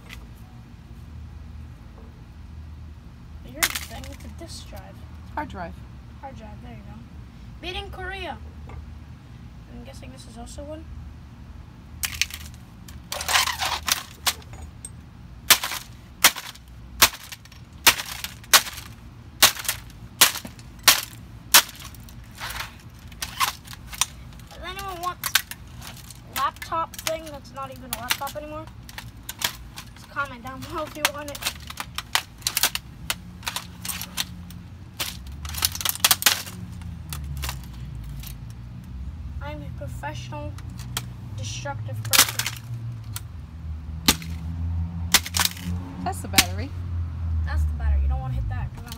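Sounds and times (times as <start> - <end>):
plastic parts rattling: 3.6 - 4.3, 12.0 - 14.9, 15.5 - 38.4, 42.1 - 43.2, 45.1 - 45.7
hammer striking plastic: 44.1 - 44.4.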